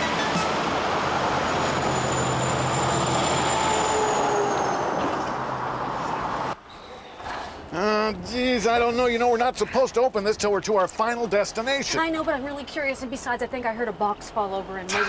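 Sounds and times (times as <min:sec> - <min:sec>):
diesel engine hum: 0:00.0 - 0:06.6
tyre and road noise: 0:00.0 - 0:15.0.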